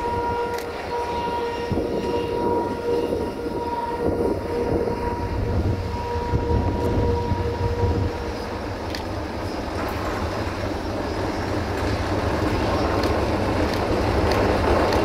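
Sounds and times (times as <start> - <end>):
drone propellers whining: 0.0 - 15.0
freight train locomotive rumble: 0.0 - 15.0.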